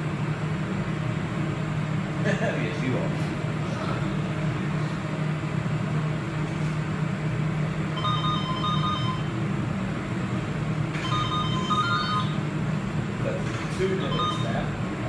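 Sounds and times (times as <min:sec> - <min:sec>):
low room hum: 0:00.0 - 0:15.0
electronic beeps tune: 0:11.1 - 0:12.4, 0:14.0 - 0:14.6.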